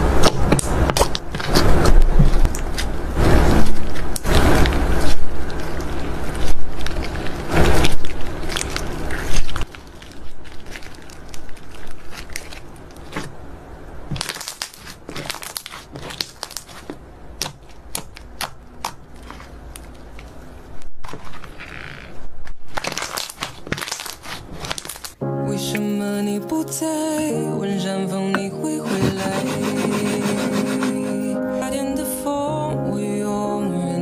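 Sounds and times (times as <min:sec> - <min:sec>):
slime squishing and crackling: 0:00.0 - 0:25.2.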